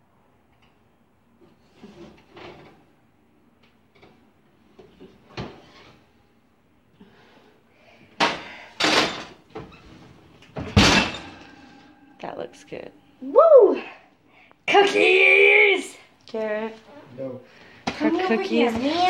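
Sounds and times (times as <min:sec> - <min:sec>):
oven door banging shut: 0:10.6 - 0:11.4.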